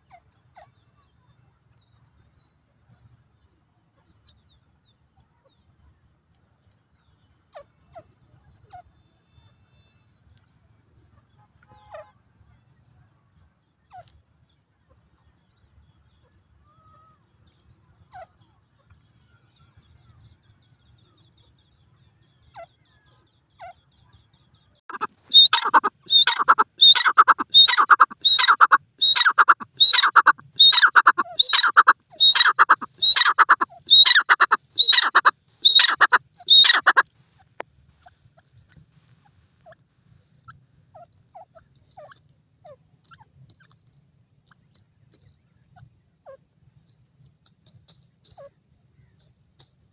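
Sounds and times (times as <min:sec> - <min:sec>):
francolin calling rattling notes: 0:24.9 - 0:37.0.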